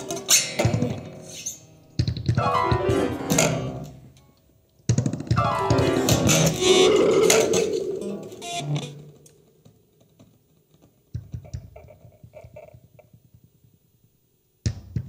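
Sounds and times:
improvised piano guitar and electronics: 0.0s - 4.1s, 5.0s - 9.2s.

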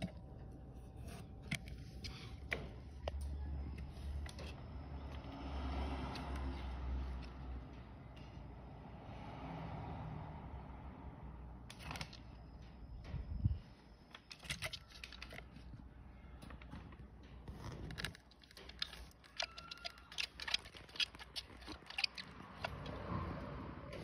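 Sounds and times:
plastic container clicks and scrapes: 17.5s - 23.1s.

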